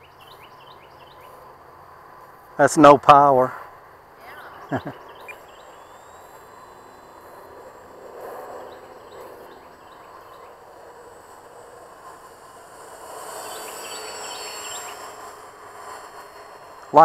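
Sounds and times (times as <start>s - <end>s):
low outdoor rush: 0.0s - 17.0s
faint high chirps: 4.2s - 10.7s.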